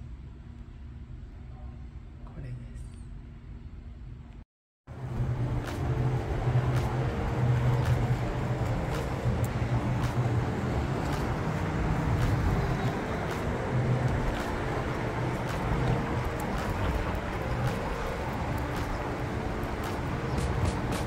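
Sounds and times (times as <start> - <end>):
engine hum: 4.9 - 21.0
outdoor rumble: 4.9 - 21.0.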